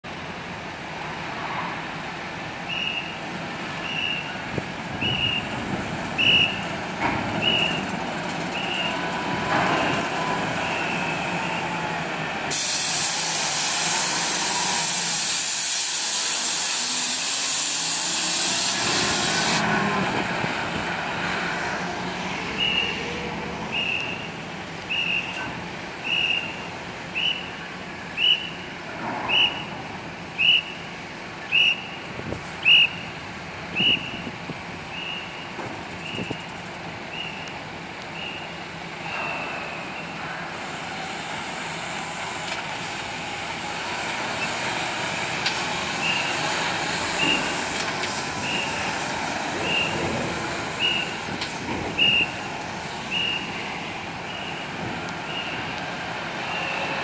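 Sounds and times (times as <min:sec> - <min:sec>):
heavy truck engines running: 0:00.0 - 0:57.0
loud air hiss: 0:12.4 - 0:19.7.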